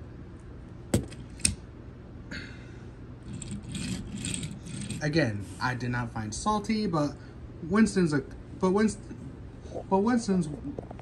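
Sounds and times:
toy wheels rattling on hard floor: 3.3s - 5.1s.

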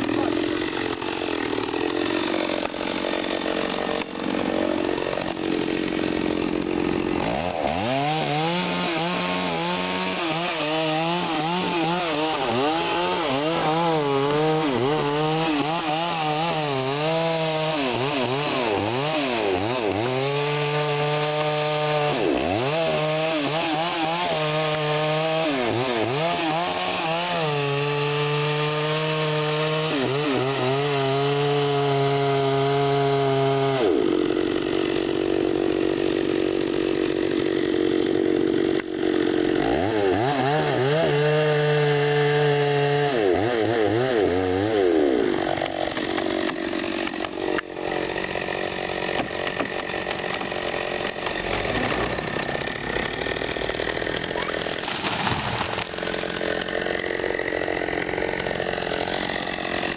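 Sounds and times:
chainsaw cutting wood: 0.0s - 59.9s.

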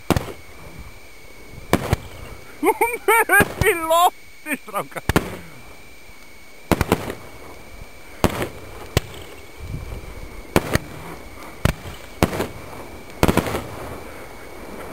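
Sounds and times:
fireworks bangs: 0.0s - 0.7s, 1.6s - 2.3s, 3.1s - 3.9s, 5.0s - 5.8s, 6.6s - 9.6s, 10.4s - 14.2s.

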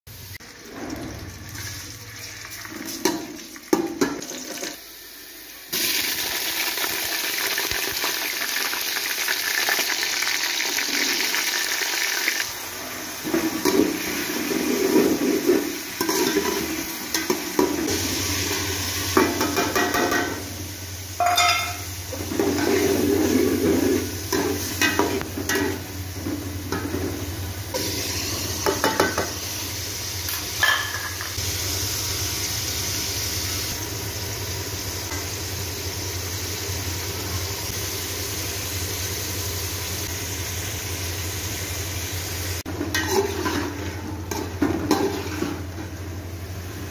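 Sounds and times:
food sizzling in oil: 0.1s - 46.9s
metal spatula scraping a pot: 42.9s - 45.6s.

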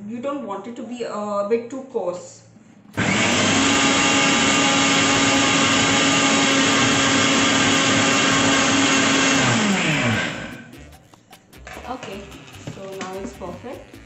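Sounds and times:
mixer grinder motor grinding: 3.0s - 14.0s.

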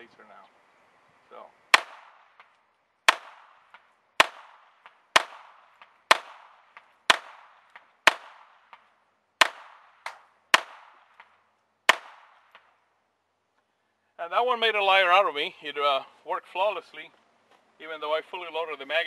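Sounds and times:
pistol shots: 1.7s - 2.5s, 3.1s - 11.3s, 11.9s - 12.7s.

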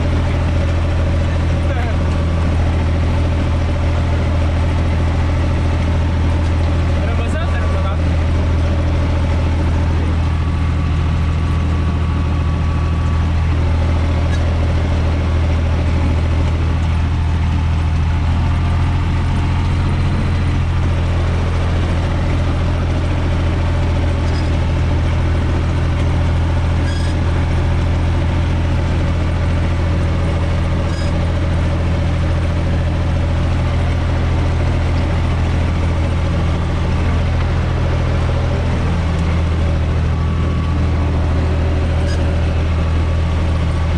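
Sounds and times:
tractor diesel engine running: 0.0s - 43.9s.

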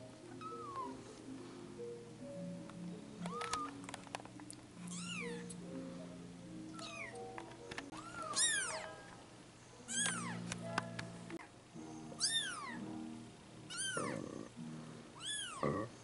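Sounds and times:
kittens mewing: 0.4s - 1.0s, 13.7s - 14.5s, 15.2s - 16.0s.

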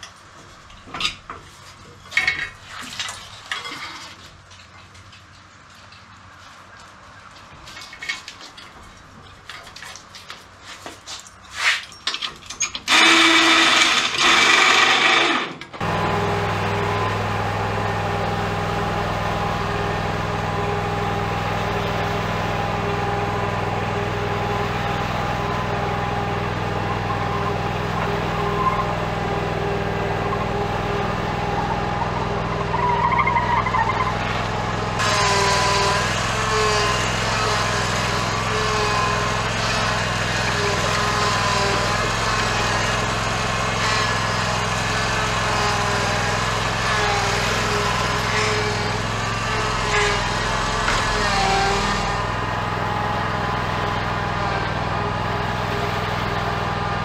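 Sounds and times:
tools clattering on metal: 11.3s - 12.9s
lawn mower engine running: 12.6s - 57.0s.

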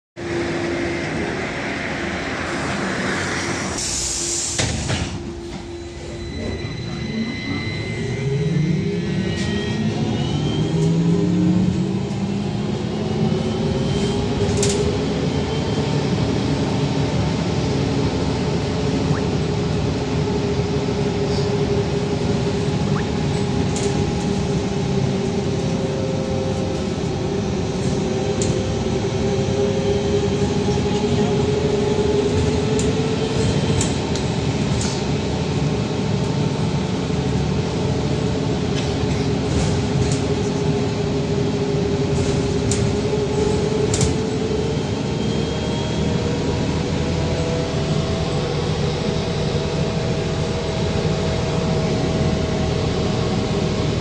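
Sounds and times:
road noise: 0.2s - 6.1s.

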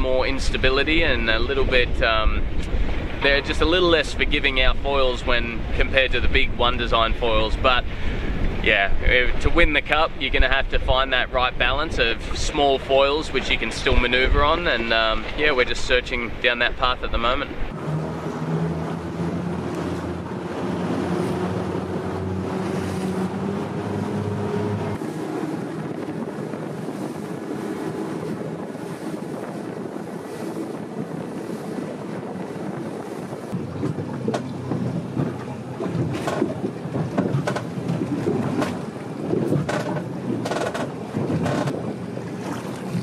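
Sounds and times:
water rushing and splashing: 0.0s - 43.0s
wind buffeting microphone: 0.0s - 43.0s.

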